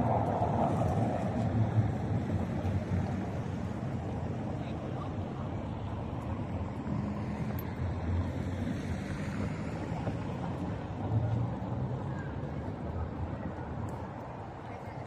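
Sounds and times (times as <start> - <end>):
city traffic rumble: 0.0 - 15.0.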